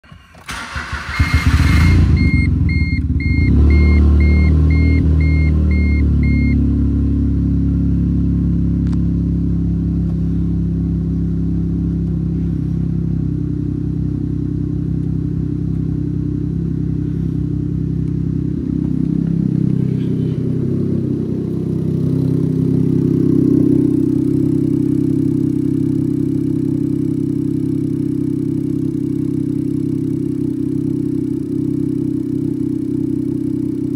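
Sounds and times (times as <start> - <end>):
car engine starting and idling: 0.0 - 33.9
dashboard warning chime beeping: 1.2 - 6.6.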